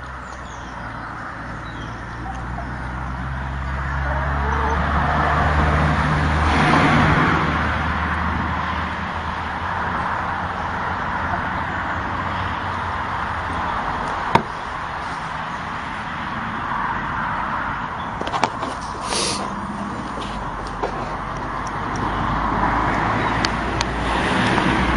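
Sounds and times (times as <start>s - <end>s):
rushing background noise: 0.0s - 24.9s
sharp knock: 14.3s - 14.6s.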